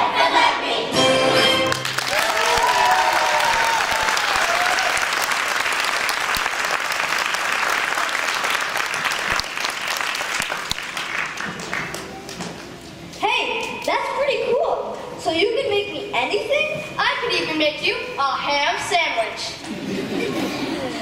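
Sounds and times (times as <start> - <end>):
audience applauding: 1.6 - 12.5
person cheering: 2.1 - 5.0.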